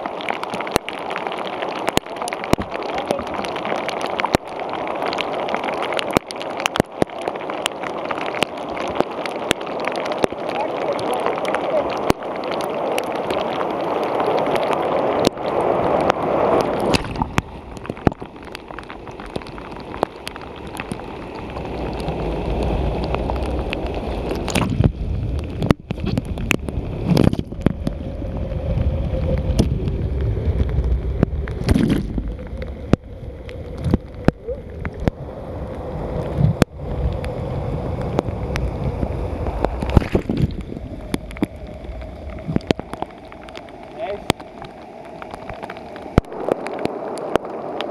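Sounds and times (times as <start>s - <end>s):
rushing gurgling water: 0.0s - 47.9s.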